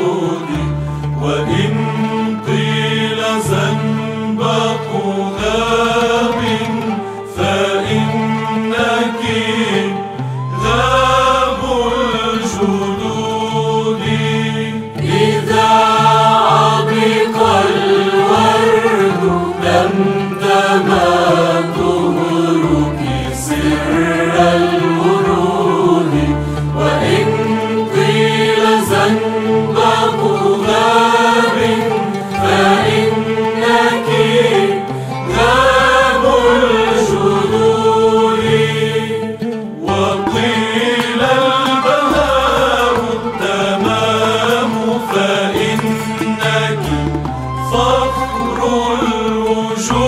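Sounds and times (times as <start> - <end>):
instrumental accompaniment: 0.0 - 50.0
person singing a hymn: 0.0 - 50.0.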